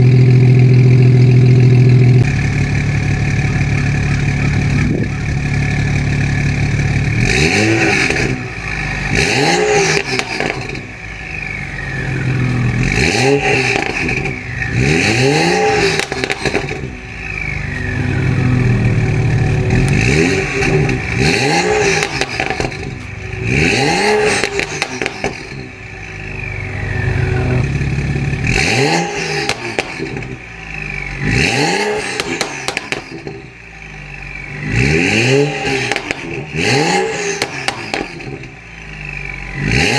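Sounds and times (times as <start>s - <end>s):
car engine revving: 0.0s - 39.9s.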